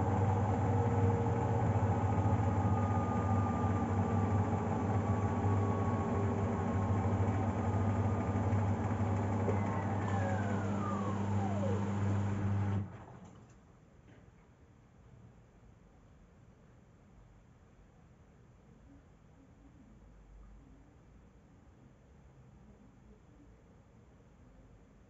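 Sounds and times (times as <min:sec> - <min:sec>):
washing machine spinning: 0:00.0 - 0:13.2.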